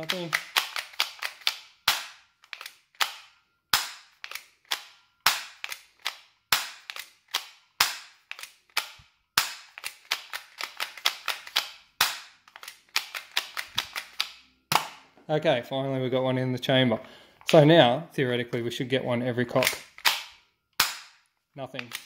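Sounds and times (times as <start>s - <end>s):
sharp plastic snap: 0.0s - 15.0s, 19.6s - 21.2s, 21.8s - 22.0s.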